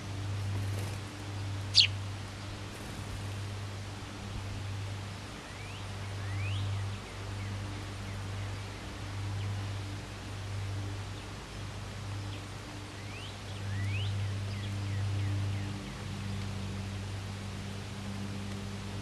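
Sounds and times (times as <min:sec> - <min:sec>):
steady hiss: 0:00.0 - 0:19.0
rising bird chirps: 0:01.7 - 0:02.0.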